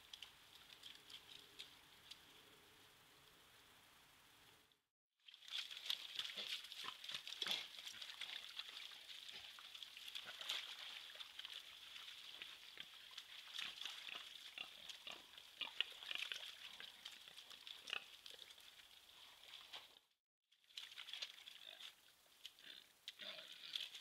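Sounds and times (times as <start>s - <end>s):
mud splashing: 5.3s - 19.8s, 20.6s - 24.0s.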